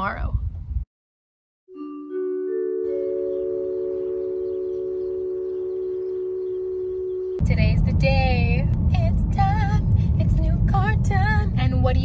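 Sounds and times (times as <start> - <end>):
chime-like ringing chord: 1.7 - 7.4.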